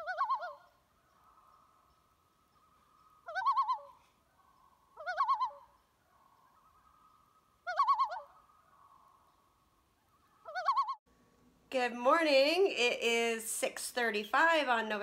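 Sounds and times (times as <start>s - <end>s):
wavering bird calls: 0.0s - 11.0s
faint steady tone: 0.0s - 11.7s.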